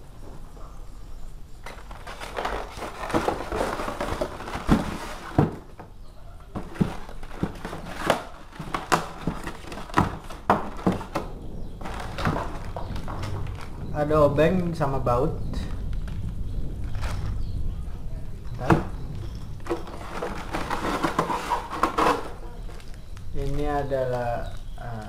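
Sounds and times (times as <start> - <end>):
foam tray rustling: 1.6 - 13.8, 18.5 - 25.0
plastic bags crinkling: 1.6 - 13.9, 15.6 - 17.5, 18.4 - 25.0.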